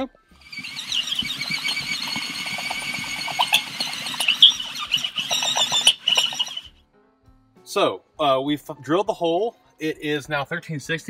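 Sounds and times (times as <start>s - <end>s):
drill bit squealing on metal: 0.0s - 6.8s
cordless drill motor whirring: 0.4s - 6.7s.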